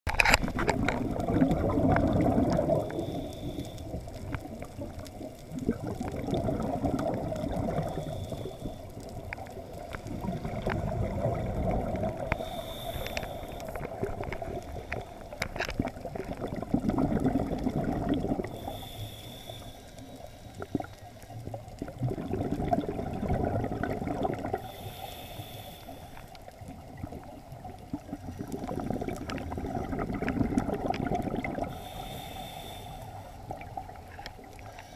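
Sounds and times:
exhaled air bubbling underwater: 0:00.1 - 0:34.9
regulator inhale hiss: 0:02.7 - 0:04.6, 0:07.8 - 0:09.2, 0:12.2 - 0:15.4, 0:18.4 - 0:21.4, 0:24.6 - 0:26.6, 0:31.6 - 0:33.6, 0:34.6 - 0:34.9.

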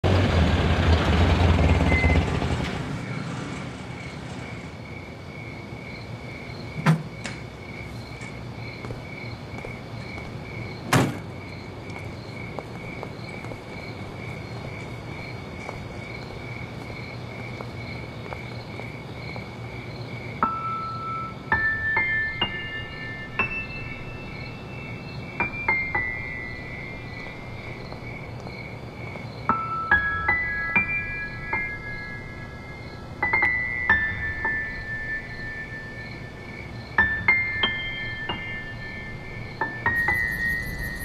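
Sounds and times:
vehicle engine running: 0:00.0 - 0:04.7
crickets chirping: 0:01.5 - 0:41.0.

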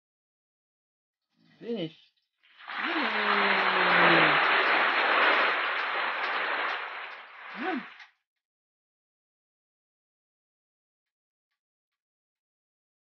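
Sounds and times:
people talking: 0:01.6 - 0:01.9, 0:02.7 - 0:06.5, 0:07.5 - 0:08.0
applause and cheering: 0:02.6 - 0:08.1
drawn-out cheering voice: 0:02.7 - 0:08.0.

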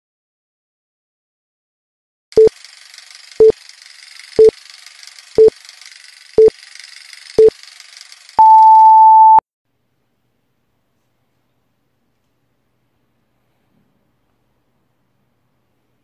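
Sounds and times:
long high-pitched beep: 0:08.4 - 0:09.4
short beeps: 0:08.4 - 0:09.4.

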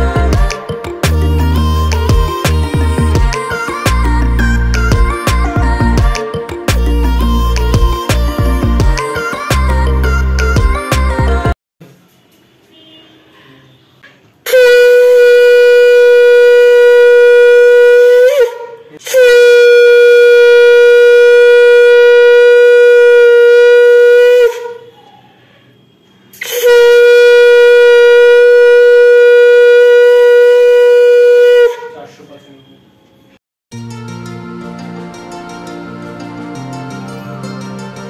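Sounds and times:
conch shell blasts: 0:14.5 - 0:24.8, 0:26.4 - 0:31.8.

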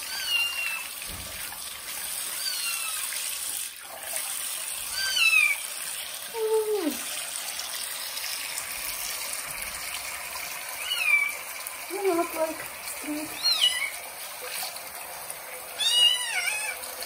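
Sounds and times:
tap running into sink: 0:00.9 - 0:01.8
kitten mewing: 0:10.8 - 0:14.0.

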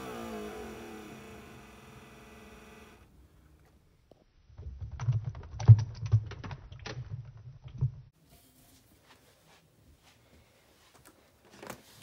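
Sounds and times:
small motor hum: 0:00.0 - 0:03.1.

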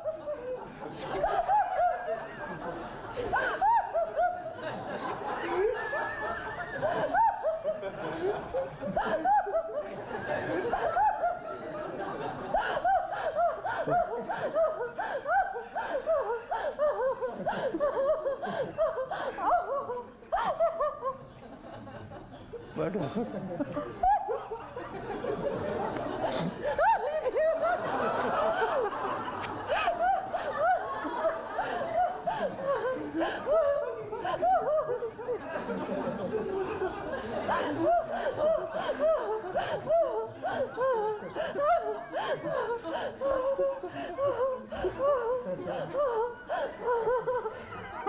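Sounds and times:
woman's high laugh: 0:00.0 - 0:11.6, 0:12.2 - 0:21.4, 0:23.6 - 0:24.9, 0:26.1 - 0:48.0
people laughing: 0:00.0 - 0:48.0.

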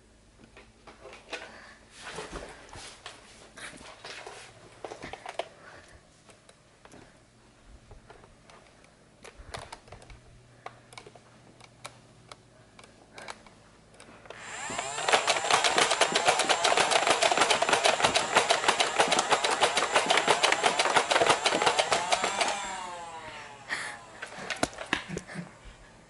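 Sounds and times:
flywheel motors whirring: 0:12.8 - 0:25.2.

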